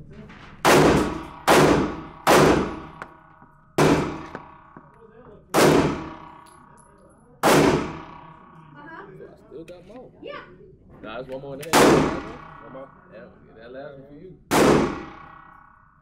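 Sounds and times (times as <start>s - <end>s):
pistol shots echoing indoors: 0.6s - 8.9s, 11.6s - 13.0s, 14.5s - 16.0s.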